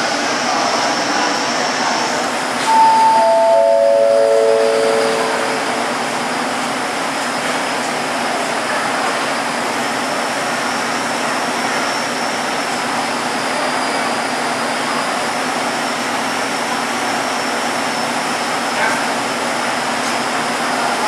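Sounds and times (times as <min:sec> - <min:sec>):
faint high whine: 0:02.7 - 0:06.5.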